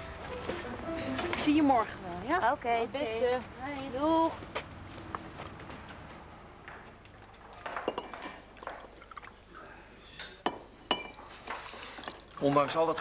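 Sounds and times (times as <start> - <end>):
glasses and tableware clinking: 7.5 - 9.2, 10.2 - 12.3.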